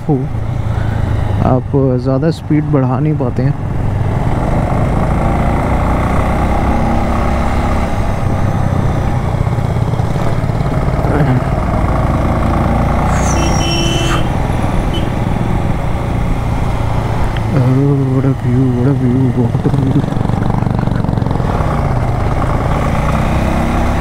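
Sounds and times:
motorcycle engine running: 3.6s - 24.0s
high-pitched tone: 13.0s - 15.2s.

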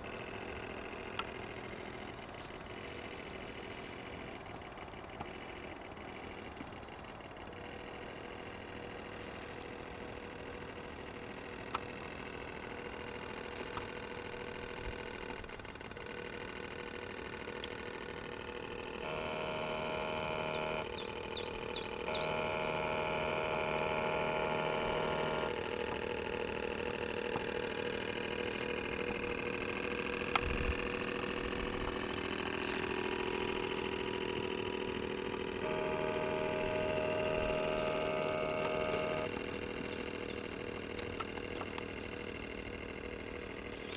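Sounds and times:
model boat motor whine: 0.0s - 43.9s
higher-pitched motor note: 18.8s - 40.4s.

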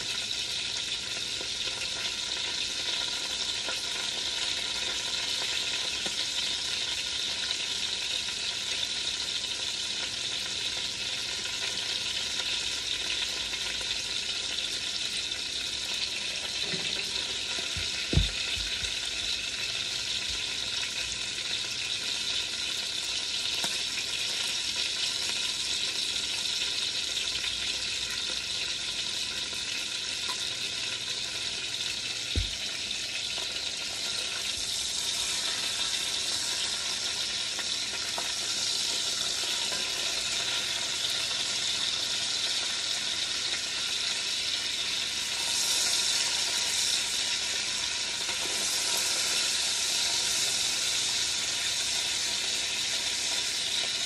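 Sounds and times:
chicken sizzling in a pot: 0.0s - 54.0s
dull thump: 17.8s - 18.9s.

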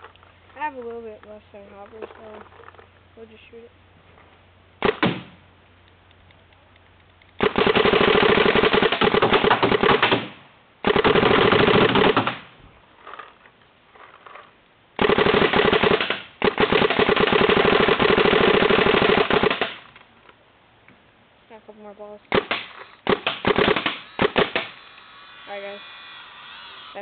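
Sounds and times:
paintball marker rapid firing: 4.8s - 5.3s, 7.4s - 12.5s, 15.0s - 19.8s, 22.3s - 24.8s.

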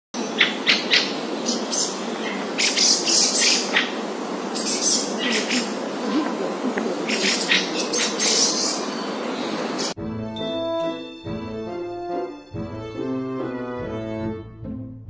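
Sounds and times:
small birds chirping: 0.2s - 10.0s
steady background noise: 0.2s - 10.0s.

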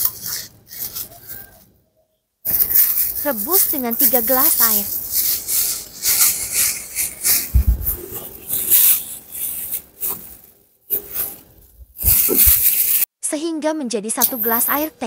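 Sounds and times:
plastic bag crinkling: 2.5s - 13.1s
low thud: 7.5s - 8.0s.

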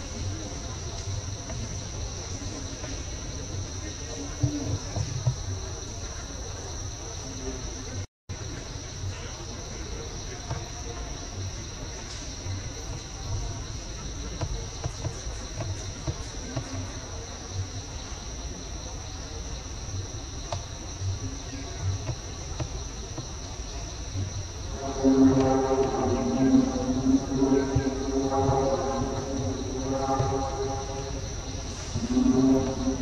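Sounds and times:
forest insects droning: 0.0s - 33.0s
low rumble: 24.6s - 33.0s.

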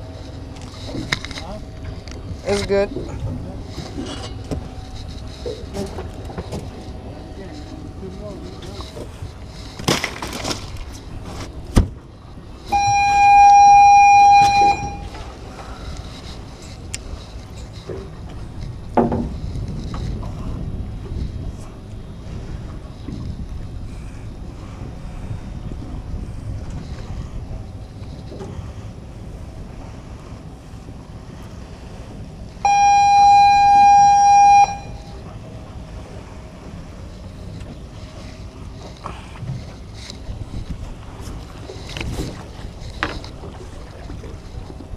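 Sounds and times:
water noise: 0.0s - 44.9s
wind: 0.0s - 44.9s
horn blowing steady note: 12.7s - 15.1s, 32.6s - 35.2s.

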